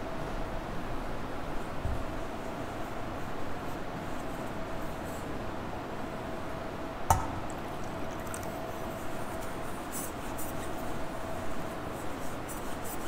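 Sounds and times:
steady hum: 0.0 - 13.0
chalice clinking: 7.1 - 8.8
liquid sounds: 7.1 - 9.6.

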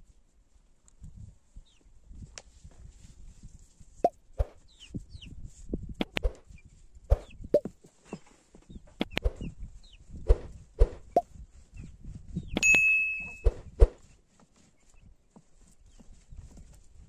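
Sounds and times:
faint high falling peeps: 12.6 - 13.6.

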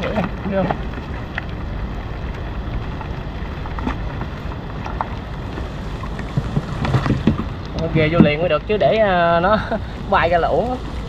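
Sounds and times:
steady rain: 0.0 - 11.0
wind rumbling on microphone: 0.0 - 11.0.

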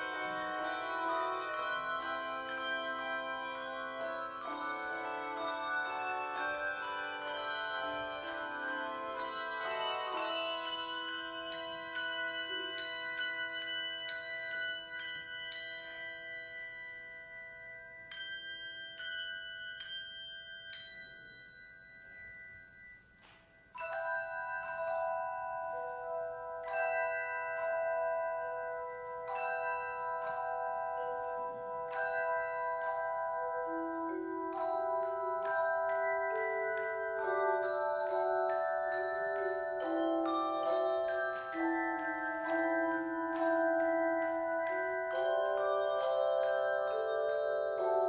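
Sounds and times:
handbells ringing: 0.0 - 48.0.

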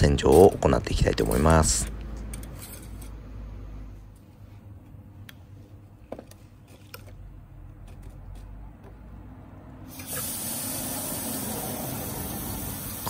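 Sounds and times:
steady hiss of engine flush: 9.9 - 13.0.

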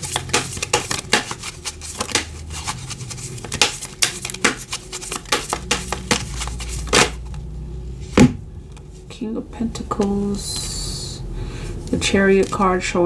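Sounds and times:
cards being shuffled: 0.0 - 7.4, 11.9 - 12.8.

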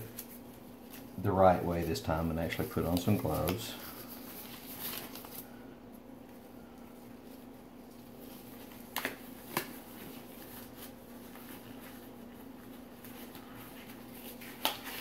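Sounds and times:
steady low hum: 0.0 - 15.0
rubber gloves snapping: 8.8 - 9.8, 14.5 - 15.0.

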